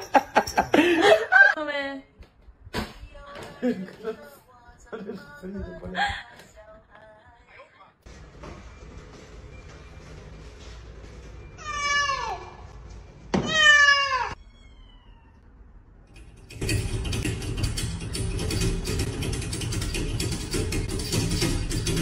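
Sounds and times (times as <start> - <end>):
cat meowing: 13.4 - 15.4.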